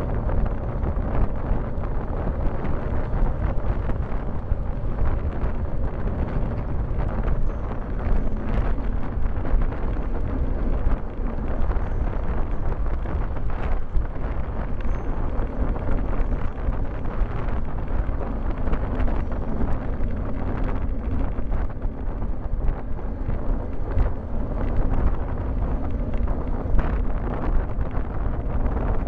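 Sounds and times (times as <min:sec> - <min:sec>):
tyre and road noise: 0:00.0 - 0:29.0
wind buffeting microphone: 0:00.0 - 0:29.0.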